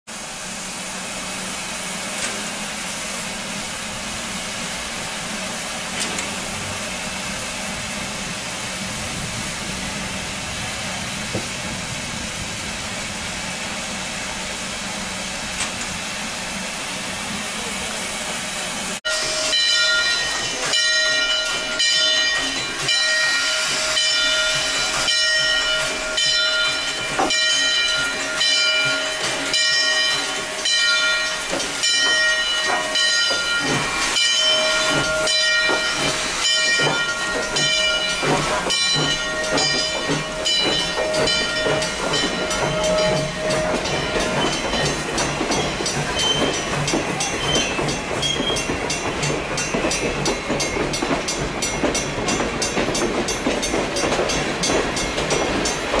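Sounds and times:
steam hissing from locomotive: 0.1s - 56.0s.

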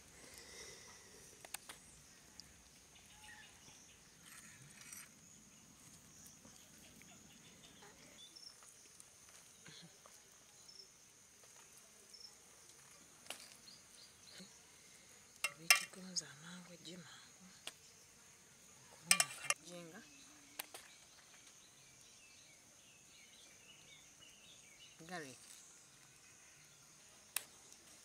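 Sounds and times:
faint insect chirring: 0.0s - 28.0s
faint clicks: 1.4s - 2.5s.

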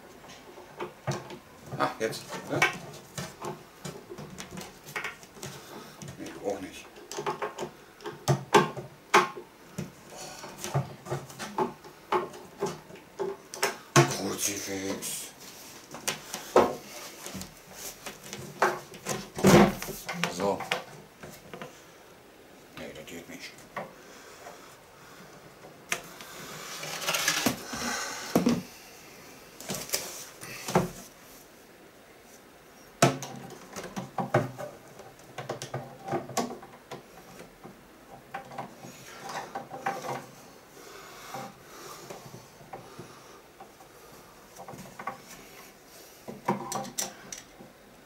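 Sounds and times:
wooden panels knocking and clicking: 6.9s - 14.3s, 17.4s - 21.7s, 33.0s - 40.4s.

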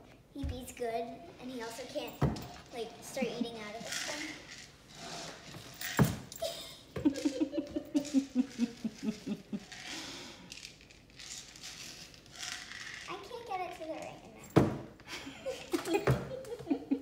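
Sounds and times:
person laughing quietly: 6.4s - 9.8s.

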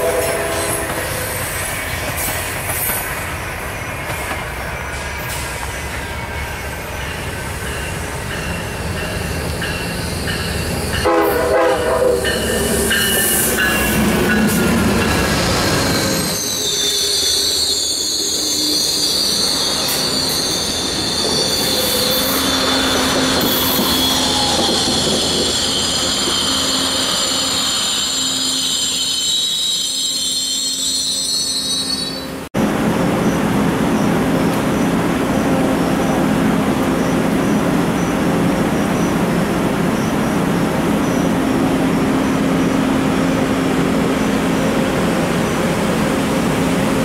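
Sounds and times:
train horn: 0.0s - 1.2s, 11.0s - 12.4s
train rumbling past: 0.0s - 47.0s
metallic wheel squeal: 15.1s - 32.4s.

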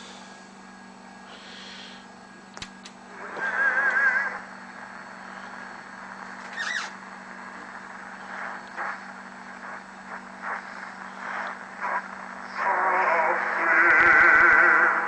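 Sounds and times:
radio static hiss and hum: 0.0s - 15.0s
radio station signal bursts: 3.1s - 15.0s.

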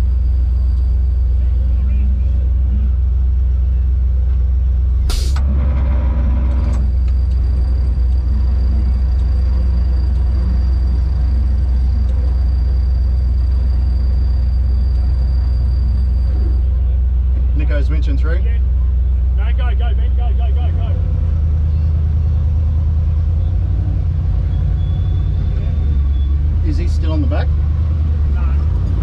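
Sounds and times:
truck engine idling: 0.0s - 29.0s
sharp hiss burst: 5.1s - 5.4s.

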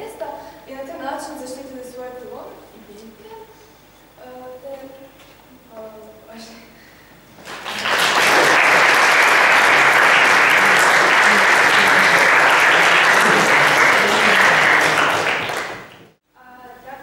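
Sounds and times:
small audience applauding: 7.4s - 16.2s.

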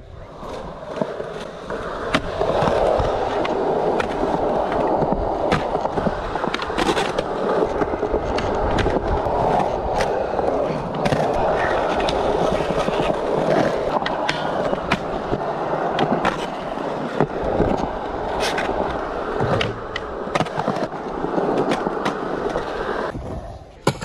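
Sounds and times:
skateboard clicks and knocks: 0.0s - 23.2s
skateboard wheels rolling on concrete: 0.0s - 24.0s.

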